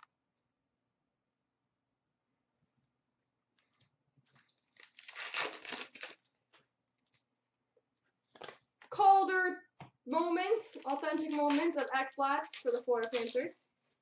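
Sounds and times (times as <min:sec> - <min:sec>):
wrapper tearing: 0:04.3 - 0:06.4, 0:10.5 - 0:13.5
cards rustling and clicking: 0:08.2 - 0:08.6, 0:10.4 - 0:13.5.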